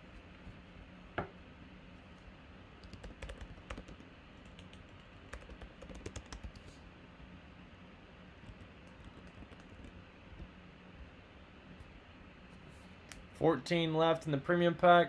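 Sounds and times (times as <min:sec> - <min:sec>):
computer keyboard typing: 0:02.8 - 0:06.6, 0:08.4 - 0:10.0.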